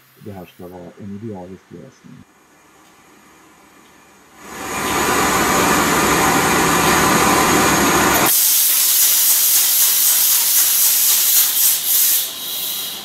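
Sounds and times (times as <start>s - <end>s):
air start hissing rush: 4.4s - 13.0s
high hiss: 8.2s - 13.0s.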